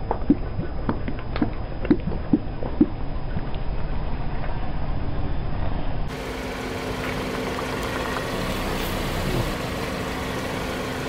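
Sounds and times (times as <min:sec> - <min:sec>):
car engine humming: 0:06.1 - 0:11.0.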